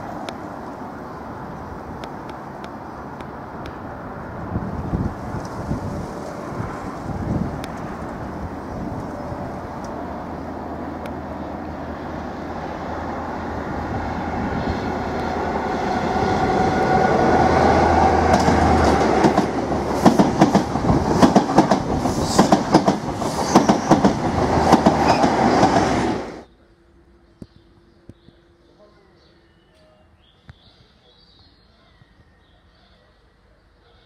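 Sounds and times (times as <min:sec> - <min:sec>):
diesel train engine drone: 0:00.0 - 0:30.2
train wheels clattering over rail joints: 0:18.2 - 0:26.2.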